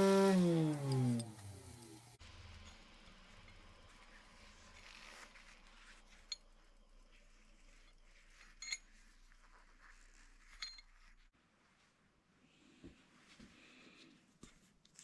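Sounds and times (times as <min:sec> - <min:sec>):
wire wheel brushing steel: 0:00.0 - 0:11.3.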